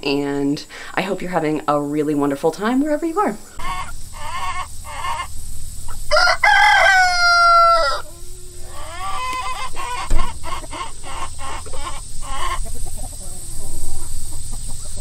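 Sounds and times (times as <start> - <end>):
chickens clucking: 0.2 - 15.0
rooster crowing: 3.6 - 5.3, 5.9 - 14.2
thump: 10.1 - 10.3.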